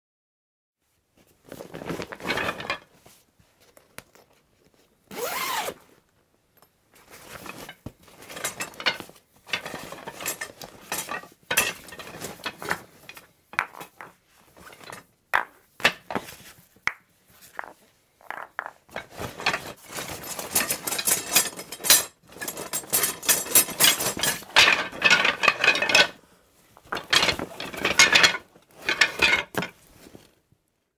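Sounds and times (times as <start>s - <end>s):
rummaging through bag: 1.2s - 5.8s, 7.0s - 11.2s, 18.9s - 26.0s.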